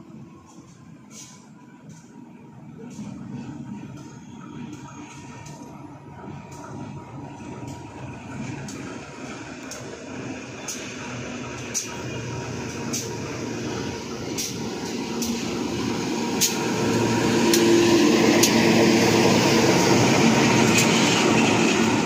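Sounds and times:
diesel locomotive passing: 0.0s - 22.0s.

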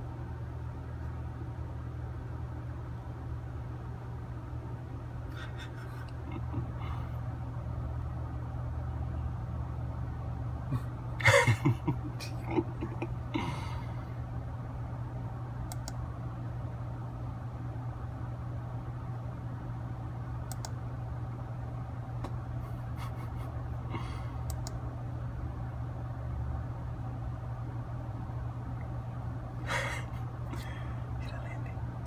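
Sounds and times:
low hum: 0.0s - 32.0s
faint clicks: 15.7s - 16.0s, 20.4s - 20.8s, 24.4s - 24.8s.

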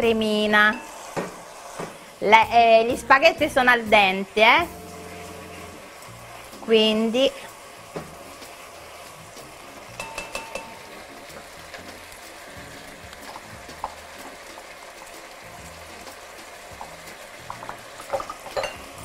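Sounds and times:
pasta sizzling in frying pan: 0.0s - 19.0s
utensil clinking against pan: 10.0s - 10.9s, 17.5s - 19.0s.

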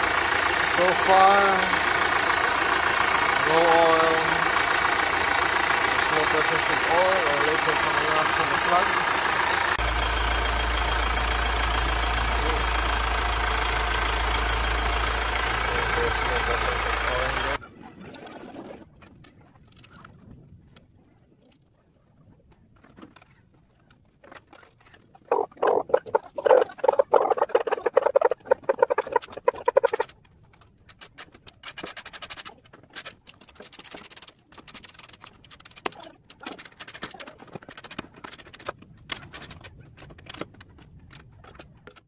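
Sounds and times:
rapid clicking and rattling: 0.0s - 9.9s, 11.7s - 17.6s, 24.2s - 42.0s
hand tools fastening bolts: 30.9s - 40.6s.

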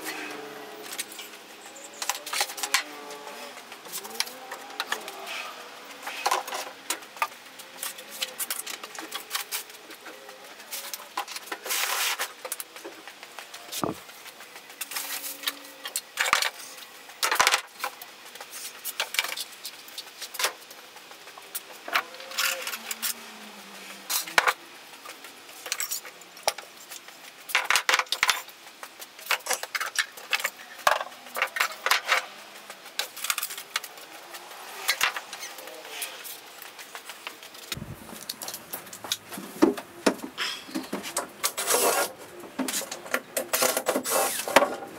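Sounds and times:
bottles and cans clattering on shelves: 27.5s - 28.5s.

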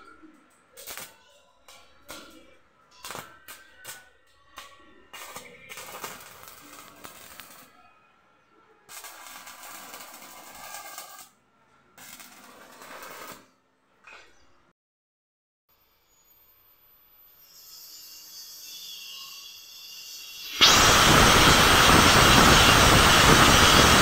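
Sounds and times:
welding arc crackling: 5.1s - 7.7s, 20.3s - 24.0s.

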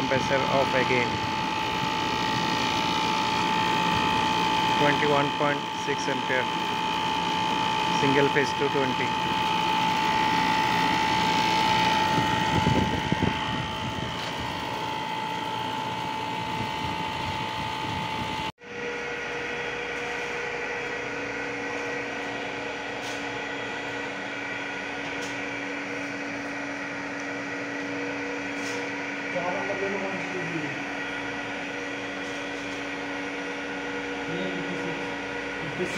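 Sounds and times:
man talking: 0.0s - 1.2s, 4.8s - 6.5s, 7.9s - 9.2s, 35.6s - 35.9s
air conditioner unit running: 0.0s - 35.9s
machine hum with low tones: 0.0s - 35.9s
steady high whine: 0.0s - 35.9s.

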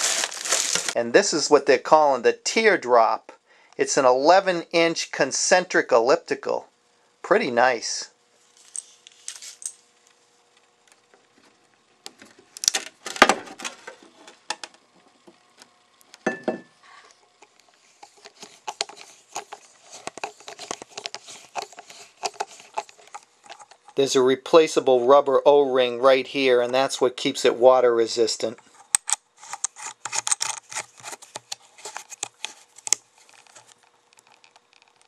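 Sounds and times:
plastic parts clicking and rattling: 0.0s - 1.0s, 18.0s - 24.0s, 28.9s - 35.0s.

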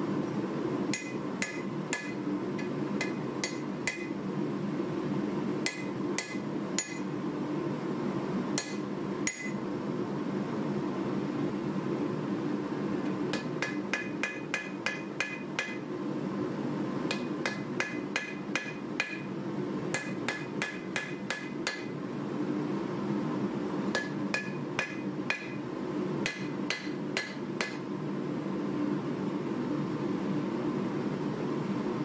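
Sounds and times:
steady low hum: 0.0s - 32.0s
hammer blows on anvil: 0.9s - 4.2s, 5.6s - 7.1s, 8.6s - 9.6s, 13.3s - 15.9s, 19.9s - 21.9s, 23.9s - 25.6s, 26.2s - 27.9s.

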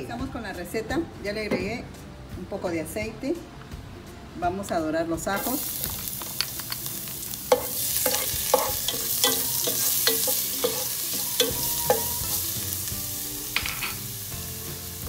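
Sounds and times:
garlic sizzling in oil: 5.4s - 15.0s
spatula knocking against pot: 7.5s - 12.3s.

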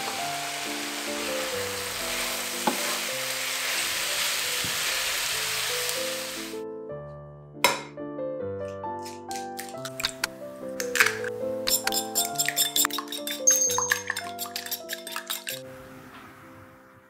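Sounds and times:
cabbage sizzling in frying pan: 0.0s - 6.6s
background music: 0.0s - 17.0s
egg cracking on ceramic bowl: 9.0s - 15.6s
wooden spoon stirring: 11.7s - 15.6s.

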